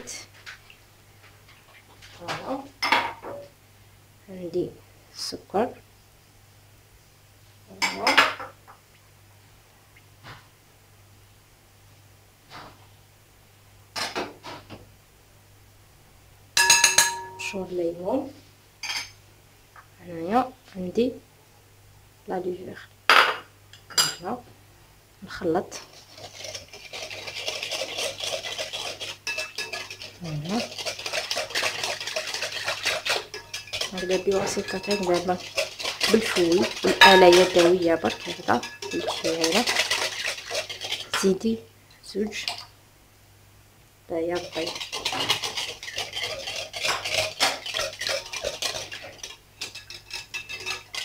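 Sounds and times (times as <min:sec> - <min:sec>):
metal utensil stirring in glass bowl: 0:16.6 - 0:17.6, 0:25.7 - 0:41.4, 0:44.3 - 0:51.0.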